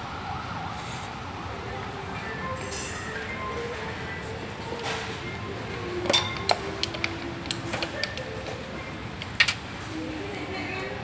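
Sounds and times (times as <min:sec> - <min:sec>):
steady background hum: 0:00.0 - 0:11.0
plastic fan parts clicking: 0:06.0 - 0:09.7.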